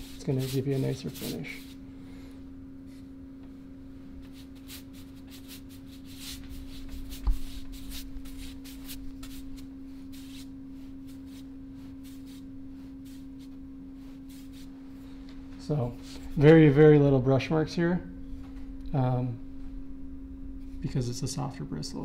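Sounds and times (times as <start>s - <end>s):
paintbrush swishing on drywall: 0.0s - 1.8s, 4.2s - 15.1s
steady low hum: 0.0s - 22.0s.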